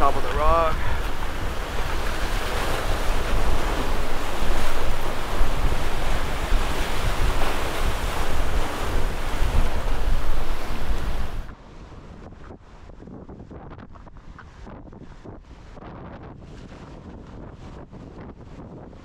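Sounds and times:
surf rushing against jetty: 0.0s - 12.8s
wind buffeting microphone: 0.0s - 19.0s.

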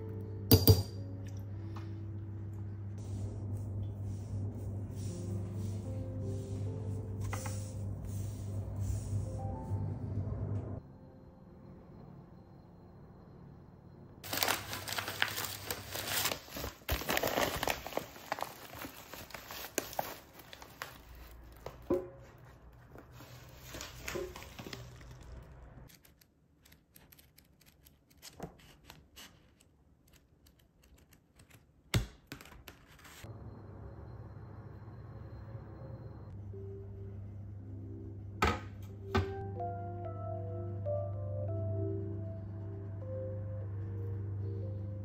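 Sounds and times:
wrapping torn and crinkled: 14.2s - 21.9s.

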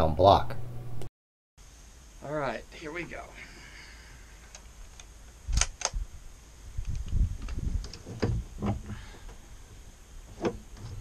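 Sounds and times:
rifle clicks: 4.5s - 6.0s
low bumps and knocks: 7.1s - 9.2s.

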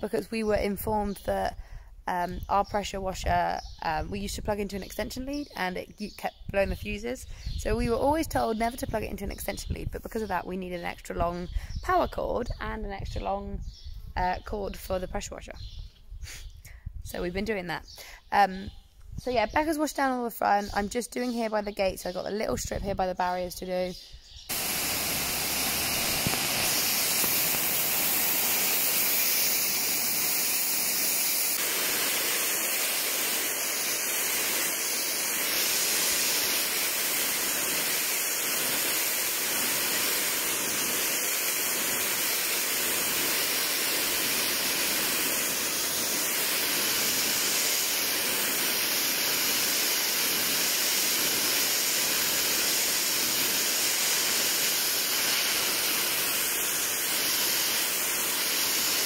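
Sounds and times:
pressure washer spray on concrete: 24.5s - 59.0s.

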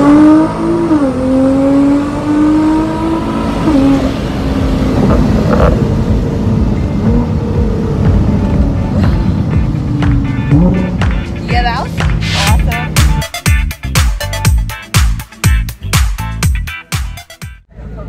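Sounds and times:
car engine at full throttle: 0.0s - 13.5s
wind and road noise: 0.0s - 13.6s.

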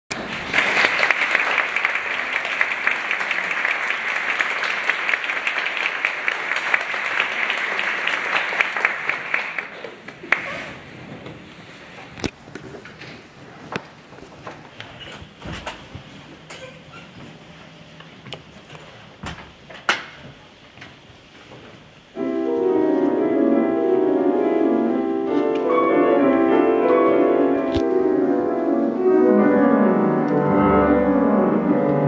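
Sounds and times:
audience applauding: 0.1s - 10.8s.

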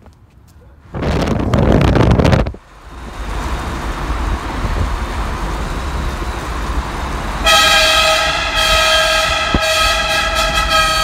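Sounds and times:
van road noise: 0.0s - 11.0s
van horn: 7.4s - 11.0s.

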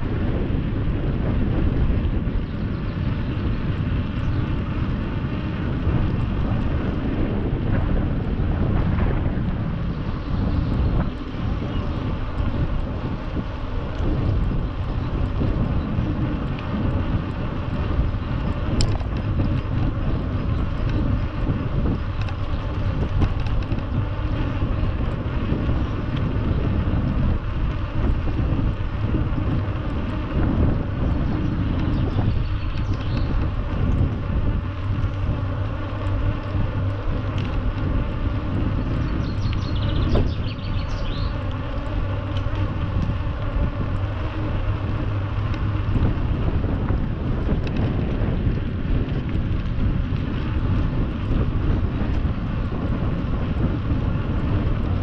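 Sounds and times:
wind rumble on microphone: 0.0s - 55.0s.

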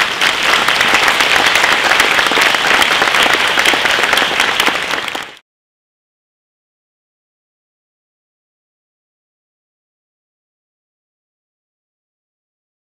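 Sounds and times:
audience applauding: 0.0s - 5.4s.

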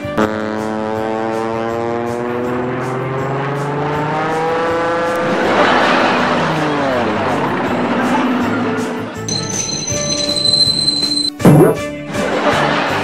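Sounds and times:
engine hum: 0.7s - 9.5s
loud rushing pass-by: 4.8s - 9.3s.

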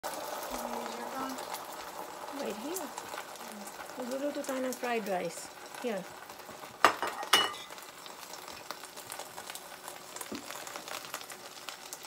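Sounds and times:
egg sizzling in hot oil: 0.0s - 12.0s.

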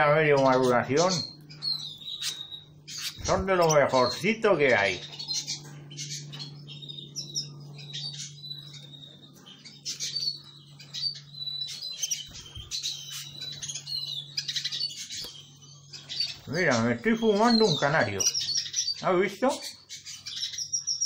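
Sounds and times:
finches chirping and twittering: 0.0s - 21.0s
steady low hum: 0.0s - 21.0s.

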